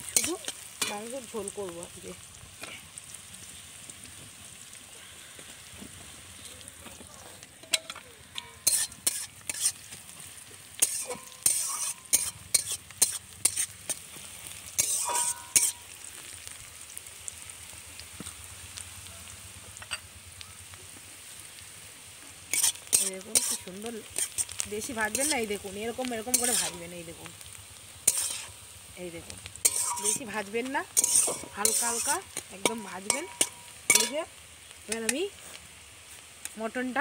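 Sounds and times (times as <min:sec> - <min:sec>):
onions sizzling in hot oil: 0:00.0 - 0:37.0
spatula scraping metal pan: 0:07.7 - 0:10.0, 0:10.8 - 0:14.0, 0:14.7 - 0:15.9, 0:22.5 - 0:25.5, 0:26.1 - 0:26.9, 0:28.1 - 0:28.6, 0:29.6 - 0:34.3.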